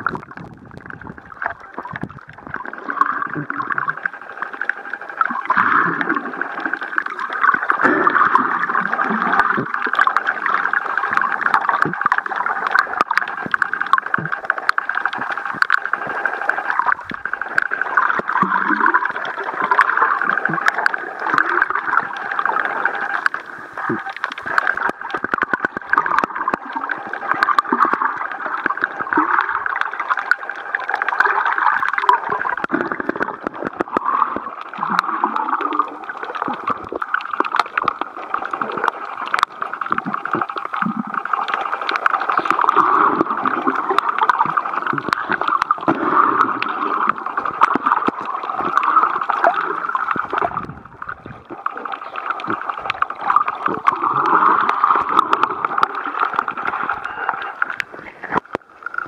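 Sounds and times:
muffled underwater water gurgling: 0.0 - 59.0
sharp underwater clicks: 0.0 - 59.0.

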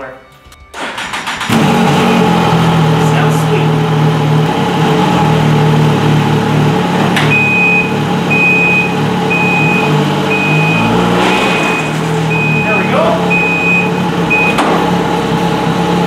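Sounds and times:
short high reverse beeps: 7.3 - 14.6.

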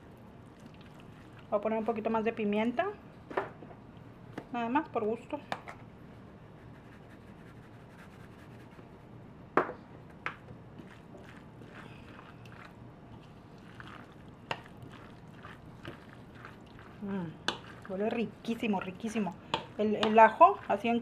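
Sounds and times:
spoon stirring wet salad: 10.3 - 21.0
spoon knocking bowl: 19.5 - 20.3.

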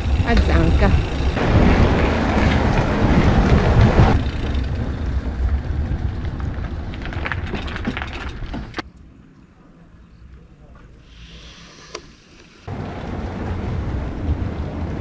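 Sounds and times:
wind on camera microphone: 0.0 - 8.0
bike tyres on asphalt: 0.0 - 15.0.

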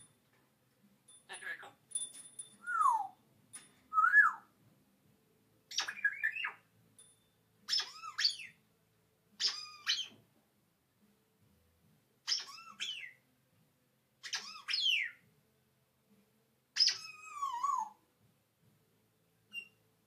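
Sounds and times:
parrot whistling: 2.6 - 3.2, 3.9 - 4.4, 7.7 - 8.6, 9.4 - 10.1, 16.8 - 18.0.

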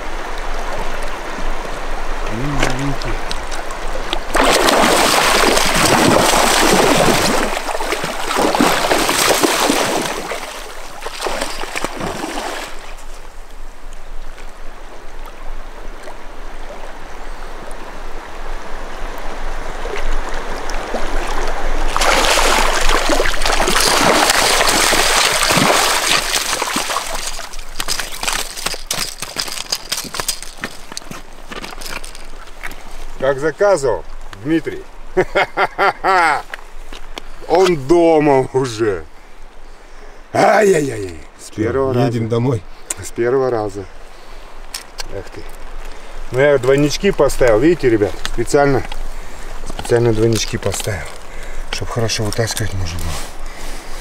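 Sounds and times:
river water rushing over stones: 0.0 - 35.2, 43.6 - 54.0
footsteps on river cobbles: 0.8 - 16.3, 19.9 - 35.6, 36.2 - 37.9, 44.4 - 54.0.

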